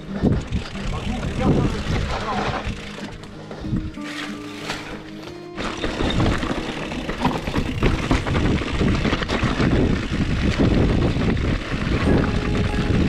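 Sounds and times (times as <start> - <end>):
wind rumble on microphone: 0.0 - 3.0, 5.8 - 13.0
bike tyres crunching over stones: 0.0 - 3.3, 4.0 - 13.0
bike rattling: 0.0 - 13.0.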